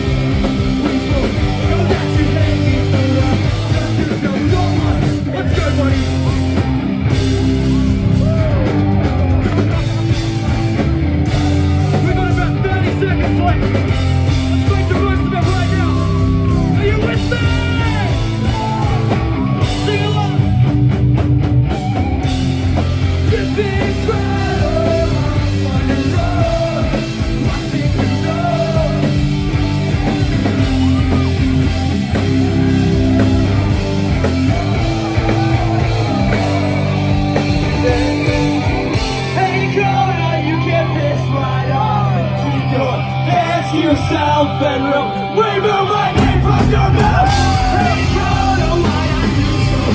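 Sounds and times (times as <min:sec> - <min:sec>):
punk rock band playing live: 0:00.0 - 0:49.9
sung and shouted vocals: 0:00.9 - 0:06.2, 0:23.2 - 0:49.9.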